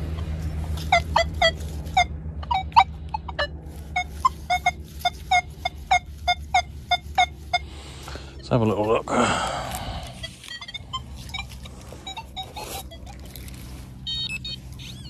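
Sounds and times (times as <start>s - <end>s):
metal detector short beeps: 10.5s - 15.0s.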